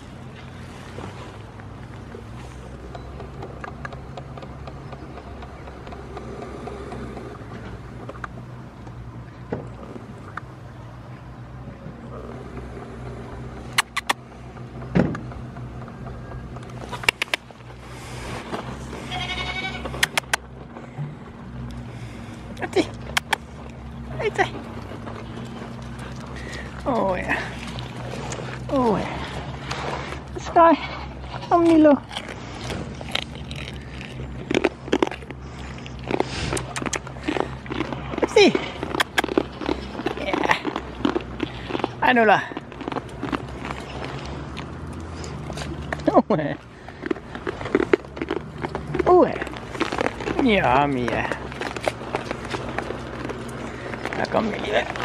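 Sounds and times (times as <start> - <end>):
goats crunching treats: 0.0 - 55.0
sharp clicks: 13.7 - 14.2, 16.5 - 17.6, 19.9 - 20.5, 23.0 - 23.8
goat bleating: 18.9 - 20.3.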